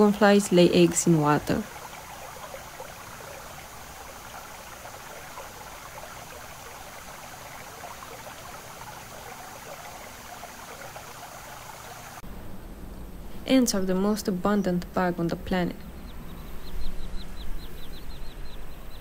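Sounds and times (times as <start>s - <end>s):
shallow stream trickling: 0.0s - 12.2s
faint low background noise: 0.0s - 19.0s.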